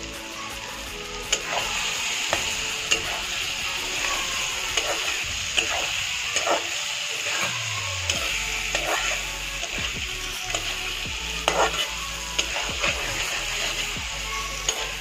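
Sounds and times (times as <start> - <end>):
food sizzling in oil: 0.0 - 15.0
metal spatula scraping pan: 8.1 - 9.8, 10.5 - 14.0.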